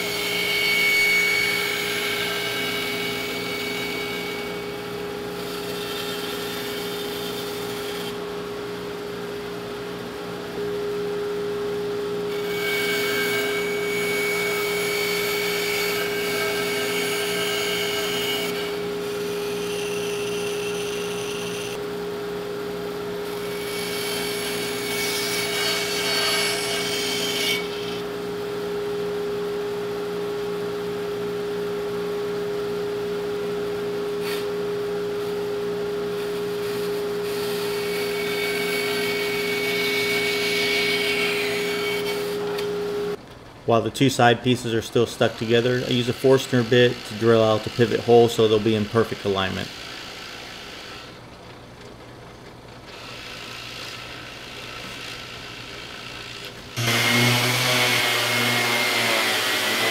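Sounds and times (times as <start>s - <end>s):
bandsaw humming: 0.0s - 22.0s, 22.6s - 43.2s, 44.2s - 51.2s, 52.9s - 59.9s
blade cutting plywood: 45.3s - 51.2s, 52.9s - 59.9s.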